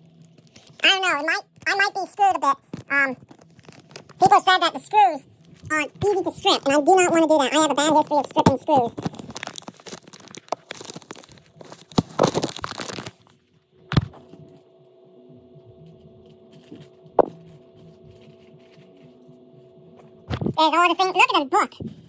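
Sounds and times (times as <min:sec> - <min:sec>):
faint steady hum: 0:00.0 - 0:22.0
paper packaging crinkling: 0:02.7 - 0:04.4, 0:08.1 - 0:13.5, 0:16.3 - 0:19.0.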